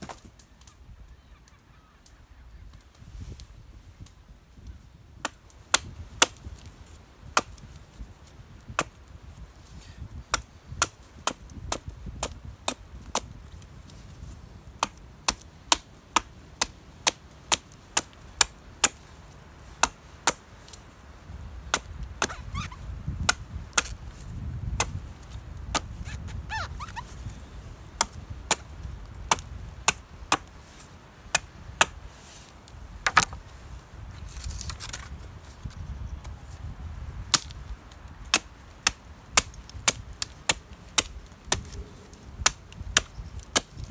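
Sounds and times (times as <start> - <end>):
low rumble of wind: 0.0 - 43.9
axe chopping wood: 5.2 - 6.4, 7.4 - 7.6, 8.7 - 9.0, 10.3 - 13.3, 14.8 - 19.0, 19.8 - 20.4, 21.7 - 22.4, 23.2 - 24.0, 24.8 - 25.0, 28.0 - 28.7, 29.3 - 30.5, 31.3 - 32.0, 33.0 - 33.4, 37.3 - 37.6, 38.3 - 41.8, 42.4 - 43.9.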